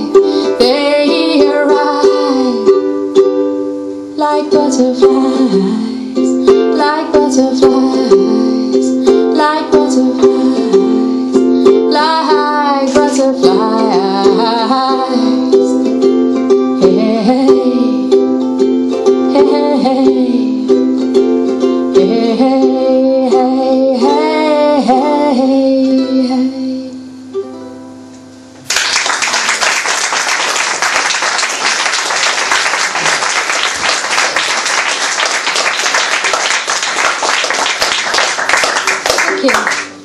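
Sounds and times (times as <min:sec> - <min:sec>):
ukulele playing: 0:00.0 - 0:28.2, 0:30.7 - 0:40.0
audience applause: 0:28.7 - 0:40.0.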